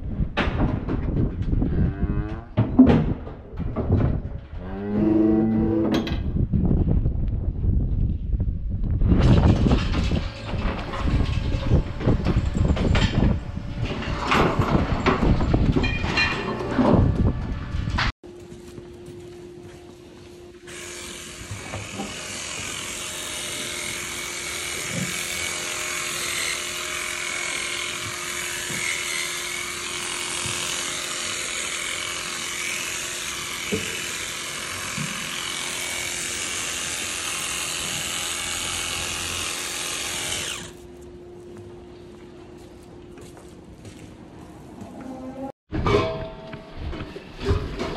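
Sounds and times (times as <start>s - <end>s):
power tool whirring: 20.7s - 40.8s.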